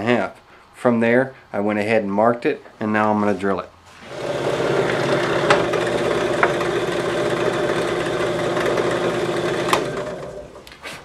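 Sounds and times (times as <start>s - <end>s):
drill press motor running: 3.9s - 10.6s
drill bit boring through wood: 4.0s - 10.6s.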